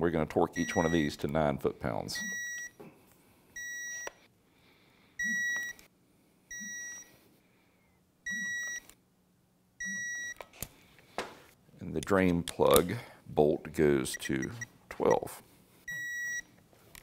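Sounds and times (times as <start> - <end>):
torque wrench beeping: 8.3 - 8.8.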